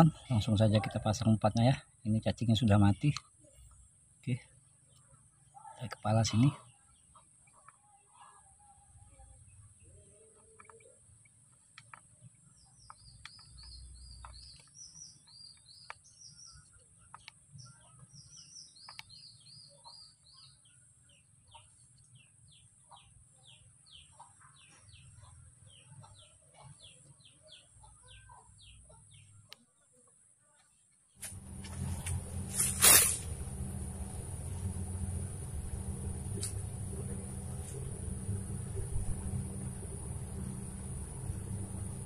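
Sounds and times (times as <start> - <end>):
bird singing faintly: 9.0 - 29.6, 31.2 - 42.0
faint clicks: 33.2 - 42.0.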